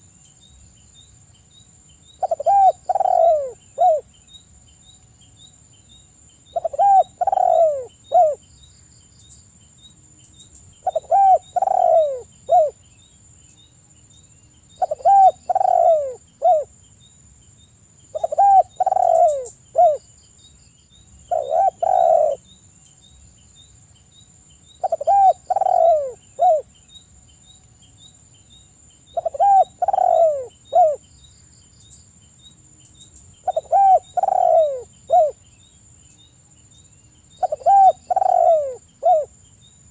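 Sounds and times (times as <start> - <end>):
dove cooing: 2.2 - 4.1, 6.5 - 8.4, 10.8 - 12.8, 14.8 - 16.7, 18.1 - 20.0, 21.3 - 22.4, 24.8 - 26.7, 29.1 - 31.0, 33.4 - 35.4, 37.4 - 39.3.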